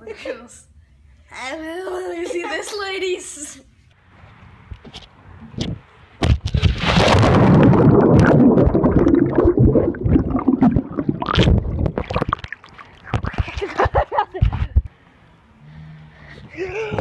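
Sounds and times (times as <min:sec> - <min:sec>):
splash into pool: 0:06.5 - 0:13.6
muffled underwater rumbling and bubbling: 0:06.6 - 0:13.6
choppy water splashing: 0:06.6 - 0:13.9.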